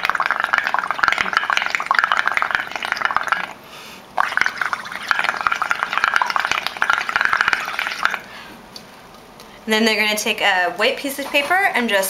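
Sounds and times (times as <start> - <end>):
blowing bubbles through a straw: 0.0 - 8.4.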